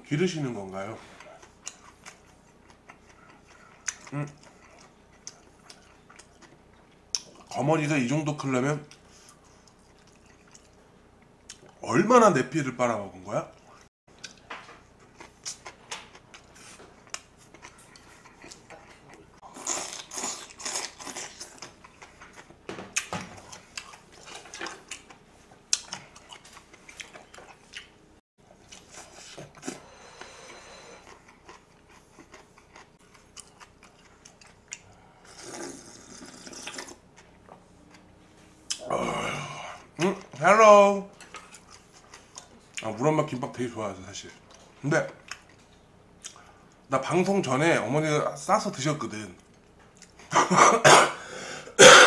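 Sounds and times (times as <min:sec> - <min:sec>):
close chewing and mouth sounds: 0:00.5 - 0:11.8, 0:13.4 - 0:38.9, 0:39.8 - 0:47.5, 0:49.4 - 0:50.4.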